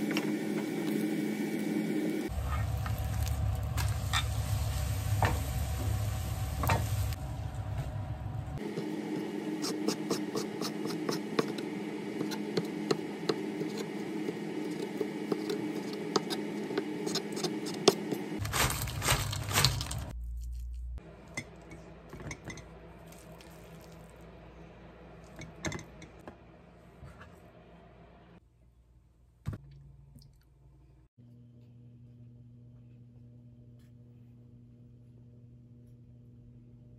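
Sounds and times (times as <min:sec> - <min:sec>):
steady hum: 0:00.0 - 0:20.2.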